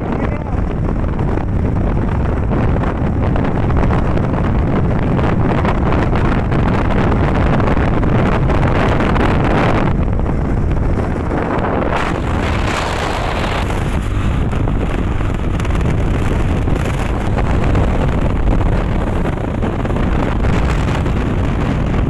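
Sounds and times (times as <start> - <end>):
motorcycle running: 0.0 - 22.0
wind rush on microphone: 0.0 - 22.0.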